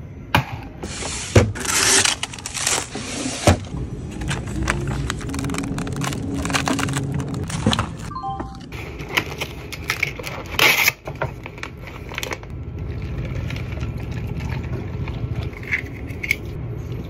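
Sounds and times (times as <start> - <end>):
plastic packaging rustling: 0.9 - 8.1
low steady hum: 2.0 - 10.1.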